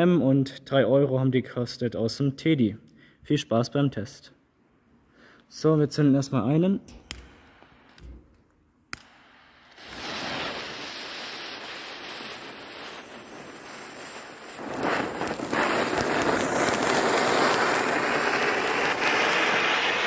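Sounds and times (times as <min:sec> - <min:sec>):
fountain firework hissing: 0:09.0 - 0:20.0.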